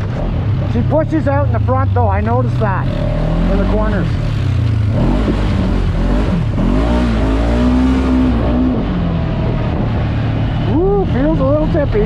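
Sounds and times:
vehicle engine accelerating: 0.0 - 12.0.

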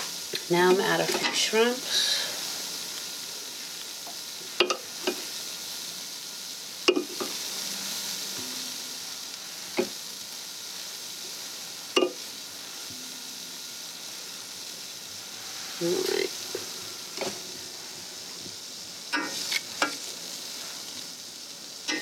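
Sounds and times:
steady hiss: 0.0 - 22.0
kitchen tongs clicking: 19.1 - 20.0.

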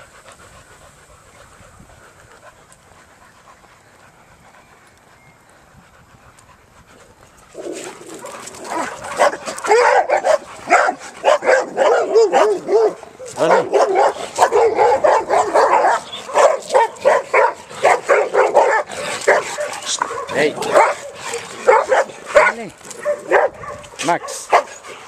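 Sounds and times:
dogs barking and yelping: 6.3 - 25.0.

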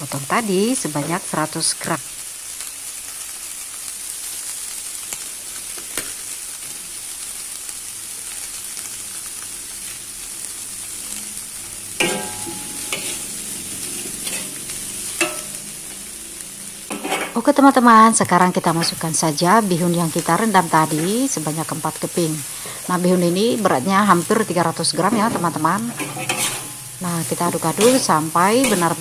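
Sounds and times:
oil sizzling in a wok: 0.0 - 29.0
metal spatula scraping a wok: 12.0 - 15.8, 16.8 - 17.4, 25.0 - 29.0.

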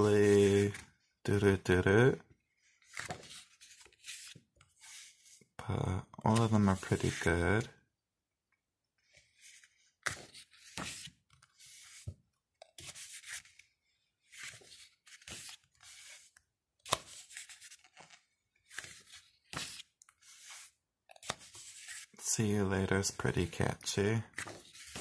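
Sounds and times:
paper pages turning: 0.0 - 1.0, 2.6 - 5.4, 6.2 - 7.7, 9.1 - 22.3, 23.1 - 25.0.

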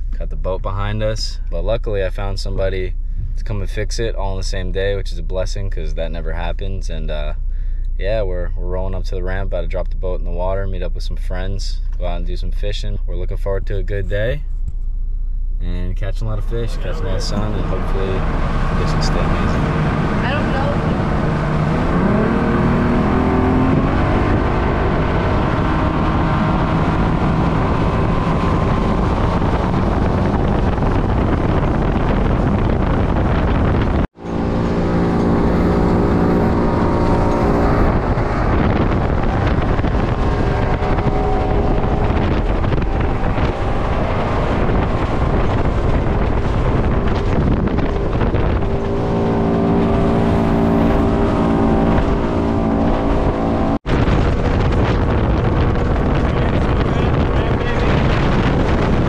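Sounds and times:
wind on microphone: 16.3 - 59.0
outboard motor running: 16.7 - 21.5, 22.2 - 53.3.

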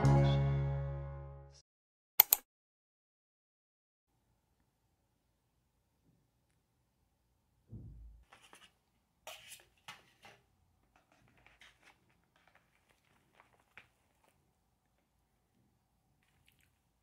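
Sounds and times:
soft low thump: 7.7 - 8.2.

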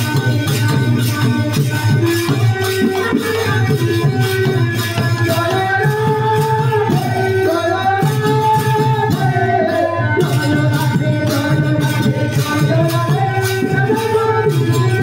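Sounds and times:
hand cymbals jingling: 0.0 - 9.6.

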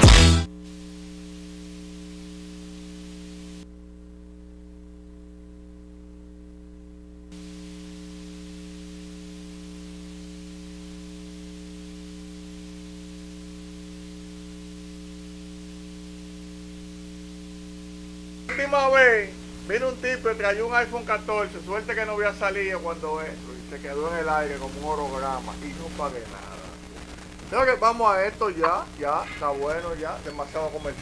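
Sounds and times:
music: 0.0 - 0.5
faint audio line hiss: 0.0 - 31.0
electrical mains hum: 0.5 - 31.0.

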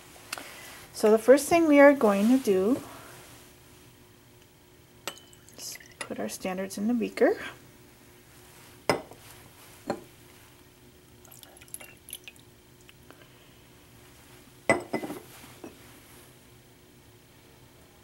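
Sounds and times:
glassware knocking and clinking: 5.1 - 5.5, 8.9 - 9.2, 9.9 - 10.1, 14.7 - 15.8
liquid trickling: 11.2 - 12.5.

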